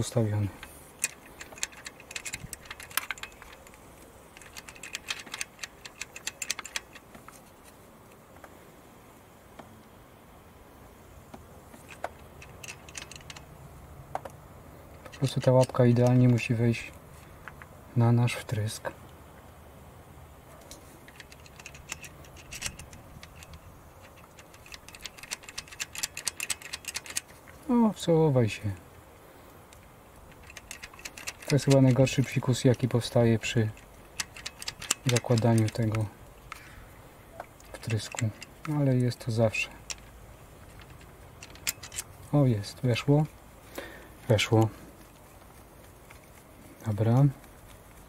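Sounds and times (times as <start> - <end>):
metallic clicks of socket wrench: 0.6 - 7.1, 11.8 - 13.5, 14.9 - 16.5, 20.7 - 27.5, 29.7 - 36.6, 37.6 - 42.2.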